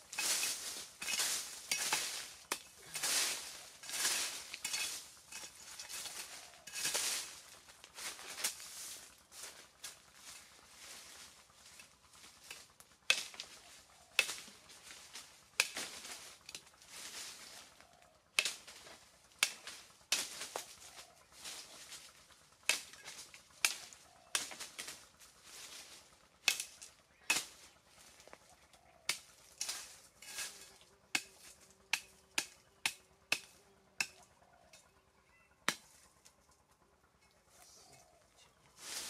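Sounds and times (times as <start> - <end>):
dry leaves rustling: 0.0 - 39.0
machete chopping wood: 31.2 - 34.2.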